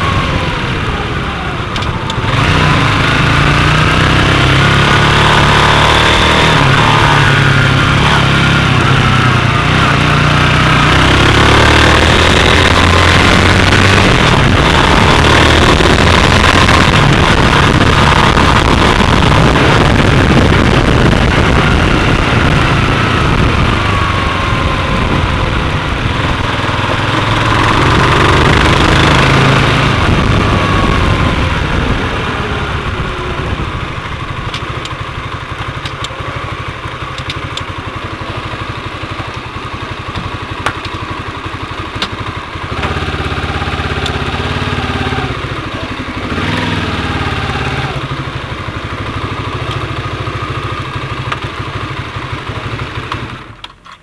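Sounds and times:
motorcycle engine running: 0:00.0 - 0:54.0
wind rushing past camera: 0:02.1 - 0:35.4
sharp clicks: 0:37.1 - 0:37.7.

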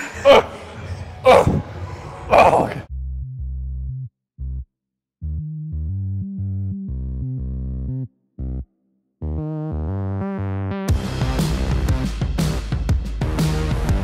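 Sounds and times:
electronic music with deep bass: 0:09.2 - 0:14.0.

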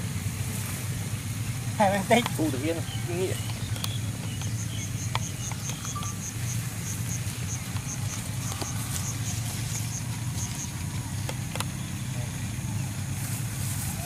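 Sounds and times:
short high chirps: 0:04.8 - 0:07.2.

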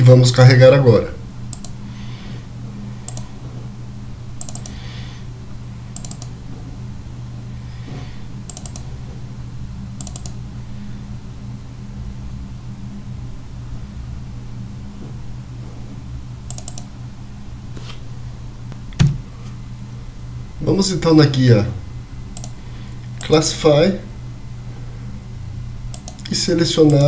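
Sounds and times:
steady low hum: 0:00.0 - 0:27.0
computer mouse clicks: 0:01.5 - 0:01.8, 0:03.0 - 0:03.4, 0:04.4 - 0:04.8, 0:05.9 - 0:06.4, 0:08.4 - 0:08.9, 0:10.0 - 0:10.4, 0:16.5 - 0:16.9, 0:22.4 - 0:23.4, 0:25.9 - 0:27.0.

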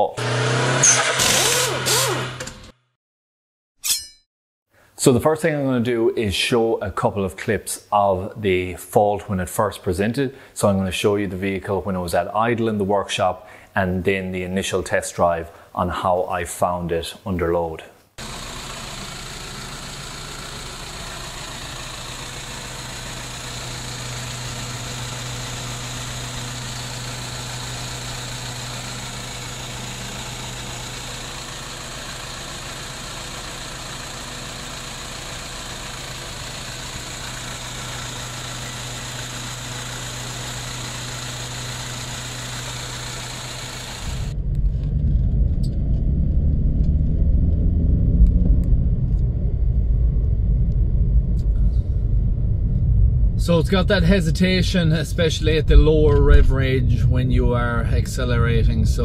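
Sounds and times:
car engine rough idle: 0:18.2 - 0:47.6.

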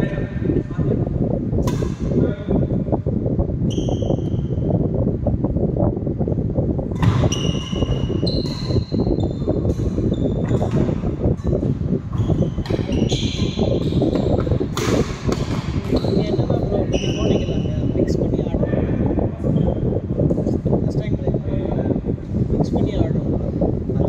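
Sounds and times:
steady low rumble: 0:00.0 - 0:24.0
shoes squeaking on wooden floor: 0:07.2 - 0:11.2
racket striking shuttlecock: 0:13.4 - 0:16.0.

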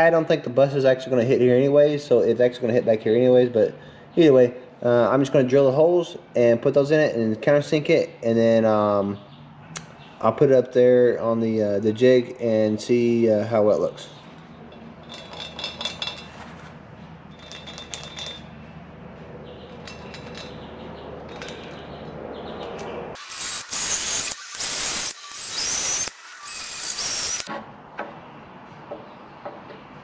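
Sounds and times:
cordless drill boring into wood: 0:23.2 - 0:27.5.

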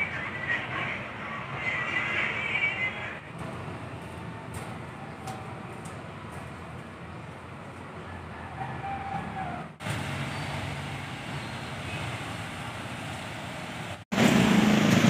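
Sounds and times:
motor vehicle running: 0:00.0 - 0:15.0
street traffic: 0:00.0 - 0:15.0
loud engine close by: 0:09.8 - 0:15.0.

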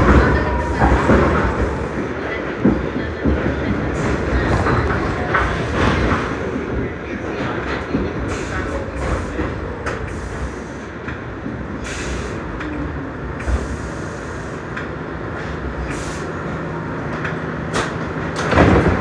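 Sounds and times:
subway wheels rumbling on rail: 0:00.0 - 0:19.0.

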